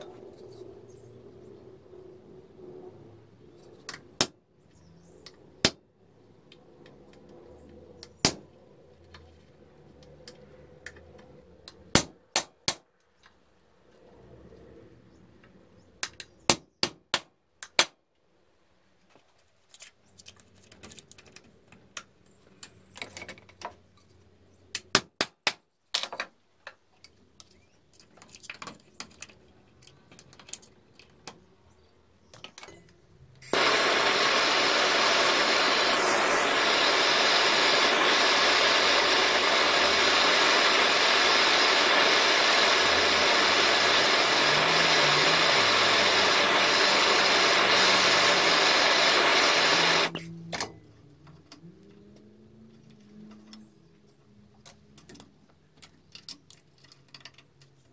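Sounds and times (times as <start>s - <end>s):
blowtorch flame rushing: 33.5s - 50.3s.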